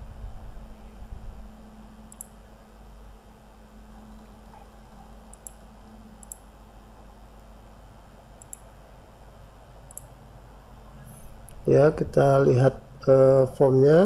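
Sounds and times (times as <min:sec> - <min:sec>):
faint background hum: 0:00.0 - 0:14.0
computer mouse clicks: 0:02.1 - 0:02.4, 0:04.1 - 0:06.5, 0:08.4 - 0:08.7, 0:09.9 - 0:10.2.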